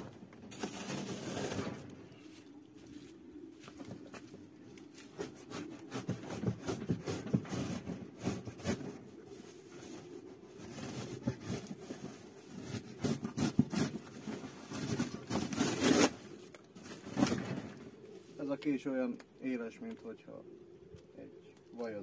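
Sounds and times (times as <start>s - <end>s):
scraping and rubbing of cardboard: 0.0s - 1.9s, 4.9s - 17.4s
knife cutting cardboard: 5.2s - 8.9s, 12.6s - 16.2s.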